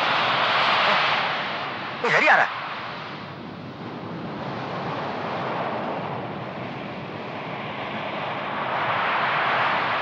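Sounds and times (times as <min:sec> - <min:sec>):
waves breaking on beach: 0:00.0 - 0:03.1.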